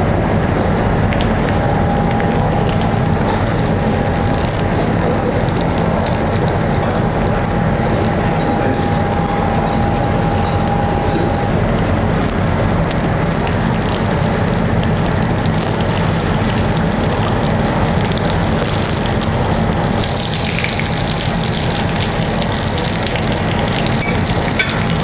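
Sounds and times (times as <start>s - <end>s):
low hum: 0.0s - 25.0s
metal spatula and tongs scraping: 6.8s - 11.5s, 24.0s - 25.0s
meat sizzling in butter: 12.1s - 25.0s.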